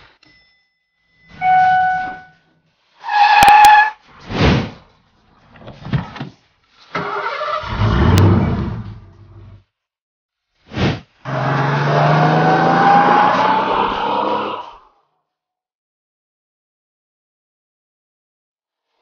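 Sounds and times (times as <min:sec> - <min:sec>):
brief electronic tones: 0:01.3 - 0:02.4
car engine starting and revving: 0:07.0 - 0:09.6, 0:11.2 - 0:14.6.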